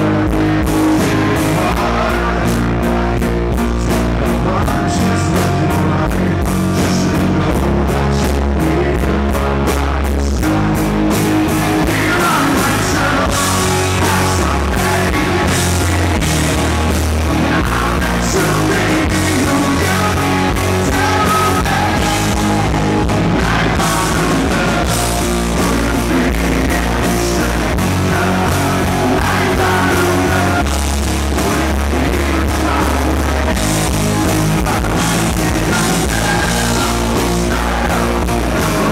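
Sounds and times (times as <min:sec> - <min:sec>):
man singing: 0:00.0 - 0:10.9, 0:11.5 - 0:38.9
rock band playing: 0:00.0 - 0:38.9.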